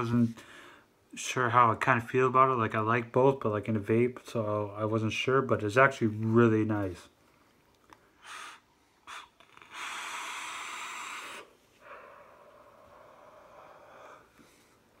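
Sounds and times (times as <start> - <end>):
e-cigarette puffs: 8.2 - 11.6
long drag through atomizer: 8.2 - 14.5
person exhaling vapour: 8.2 - 14.7.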